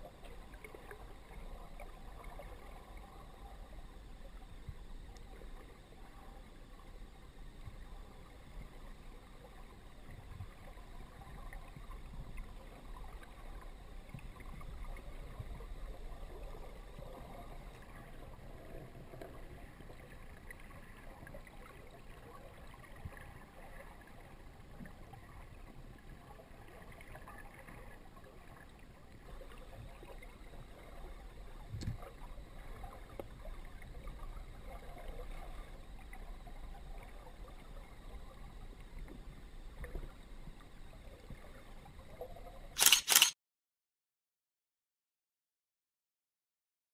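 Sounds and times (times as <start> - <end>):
muffled underwater river current: 0.0 - 42.9
sharp click: 42.8 - 43.4.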